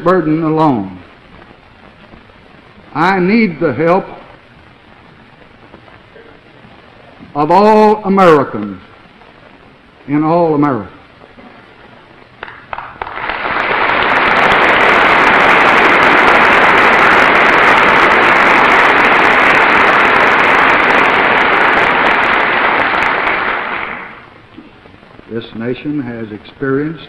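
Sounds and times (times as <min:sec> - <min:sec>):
large audience applauding: 0:12.4 - 0:24.3.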